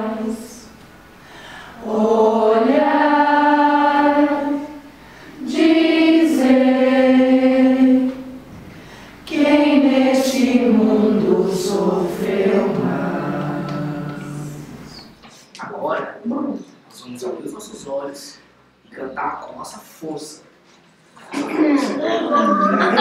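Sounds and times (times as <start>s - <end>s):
choir singing unaccompanied: 0.0s - 15.2s.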